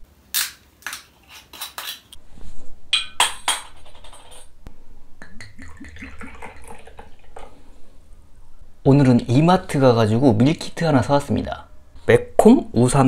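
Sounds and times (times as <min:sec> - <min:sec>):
glass clinking: 0:03.0 - 0:04.5
liquid glugging from bottle: 0:05.2 - 0:07.6.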